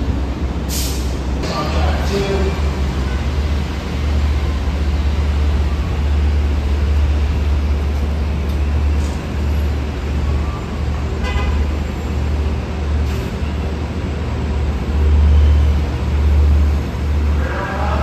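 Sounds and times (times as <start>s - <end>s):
street traffic rumble: 0.0s - 18.0s
car horn toot: 11.2s - 11.6s.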